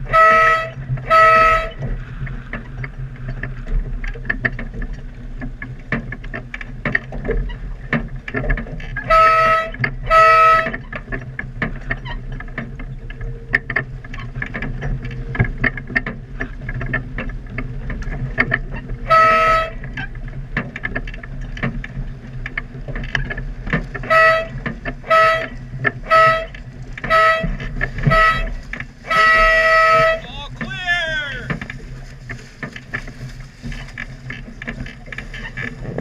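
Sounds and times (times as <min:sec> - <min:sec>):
air horn blasts: 0:00.0 - 0:01.8, 0:09.1 - 0:10.8, 0:19.0 - 0:19.8, 0:24.0 - 0:31.6
wind and water noise: 0:00.0 - 0:36.0.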